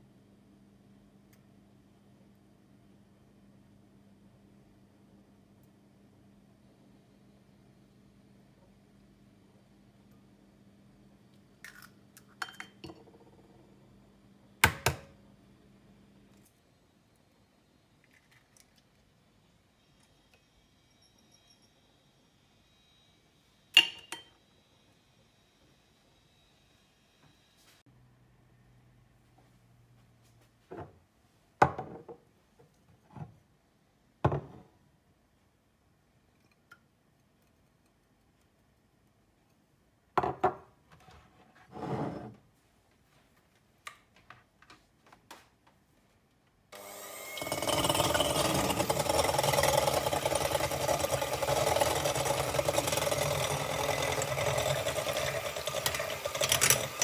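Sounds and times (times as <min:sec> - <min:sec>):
faint steady hum: 0:00.0 - 0:46.8
glass bowls clinking on countertop: 0:12.3 - 0:13.3, 0:23.8 - 0:24.4.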